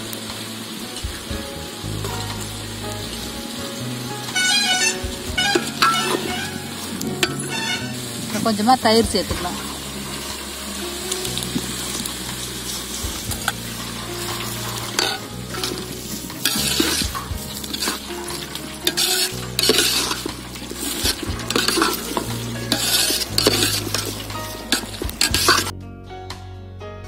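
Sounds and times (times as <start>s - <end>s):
food sizzling: 0.0s - 25.7s
metal ladle scraping a pot: 4.2s - 8.4s, 9.4s - 25.7s.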